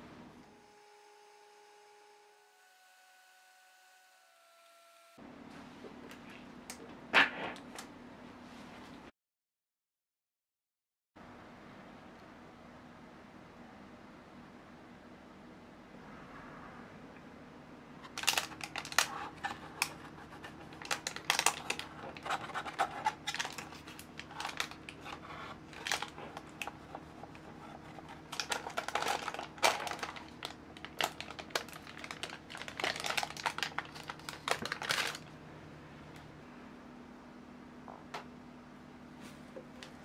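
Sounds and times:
faint steady hum: 0.0s - 9.1s, 11.2s - 40.0s
parchment paper crinkling: 18.0s - 35.3s.

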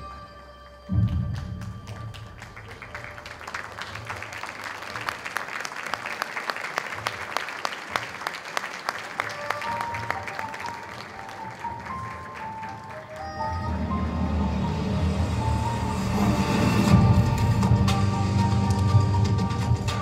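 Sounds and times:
background music: 0.0s - 20.0s
audience applauding: 1.0s - 14.2s.

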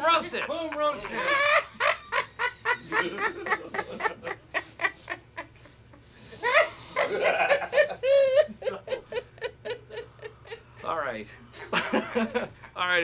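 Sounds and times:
group of people laughing: 0.0s - 12.8s.

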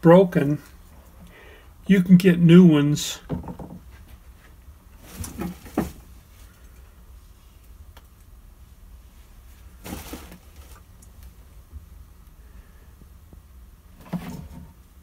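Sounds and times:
steady low hum: 0.0s - 15.0s
faint handling sounds: 9.0s - 11.4s.

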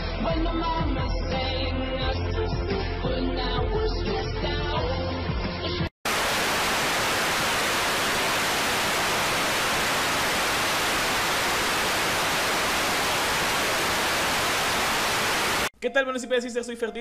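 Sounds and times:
tv static hiss: 6.1s - 15.7s.

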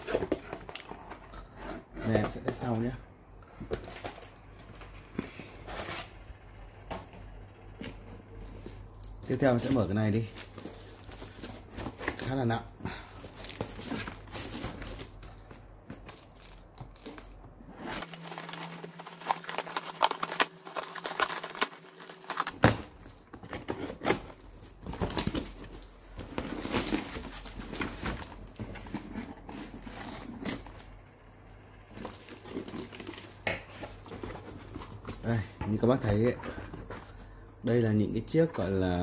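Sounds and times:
cardboard and paper crinkling: 0.0s - 2.8s, 7.9s - 31.0s, 31.9s - 37.4s
packing tape cut and torn: 16.1s - 31.0s.

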